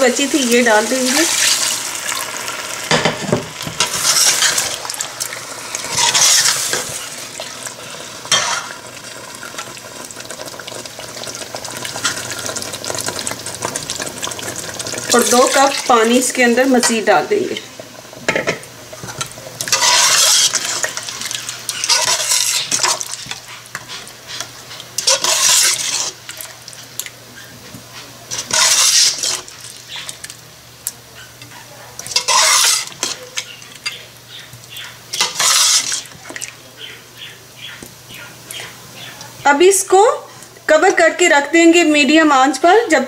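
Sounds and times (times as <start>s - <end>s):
spoon stirring liquid in pot: 3.7s - 8.8s, 18.1s - 36.6s.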